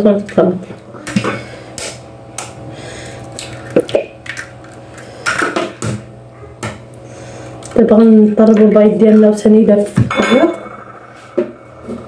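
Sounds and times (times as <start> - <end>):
eggs cracking on bowl edge: 3.2 - 5.4.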